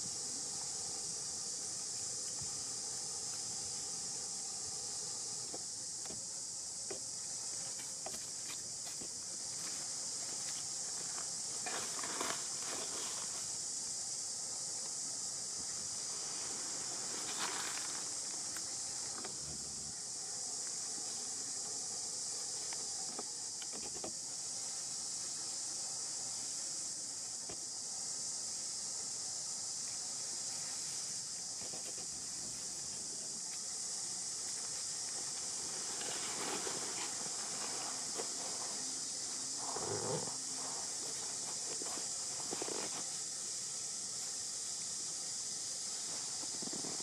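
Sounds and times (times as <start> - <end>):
high-pitched insect drone: 0.0 - 47.0.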